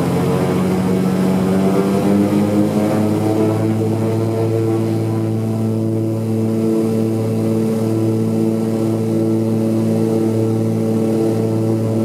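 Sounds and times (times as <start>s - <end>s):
propeller drone in cabin: 0.0s - 12.0s.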